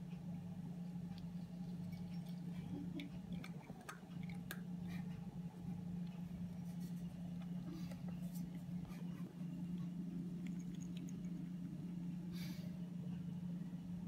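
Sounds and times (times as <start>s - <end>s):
low hum: 0.0s - 14.0s
cat crunching dry kibble: 1.2s - 5.3s, 9.7s - 11.8s.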